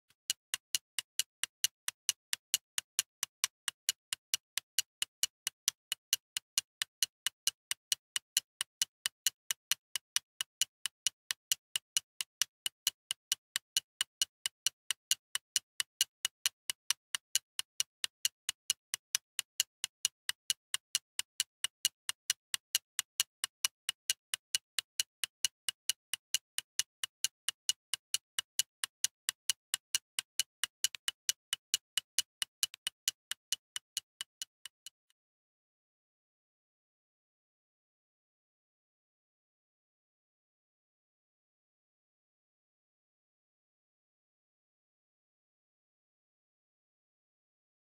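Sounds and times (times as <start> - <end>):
steady ticking clicks: 0.0 - 35.1.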